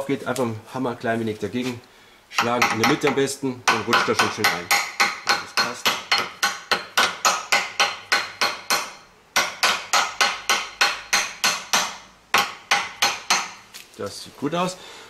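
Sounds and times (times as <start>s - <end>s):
hammer striking metal: 2.4s - 13.6s.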